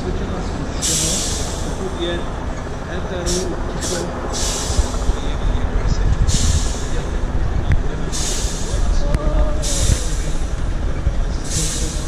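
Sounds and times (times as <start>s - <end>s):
diesel engine rumbling under load: 0.0s - 12.0s
short bursts of hiss: 3.3s - 5.0s.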